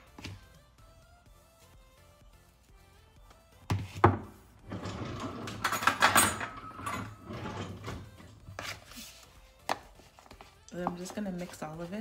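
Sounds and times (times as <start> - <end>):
utensils and containers clinking: 4.7 - 9.2.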